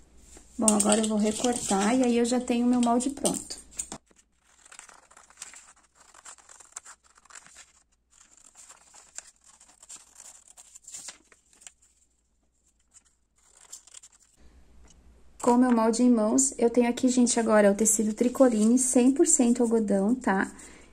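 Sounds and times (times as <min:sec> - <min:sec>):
paper rustling: 0:00.3 - 0:14.4, 0:18.0 - 0:19.6
scissors snipping paper: 0:00.6 - 0:11.8, 0:12.9 - 0:14.4.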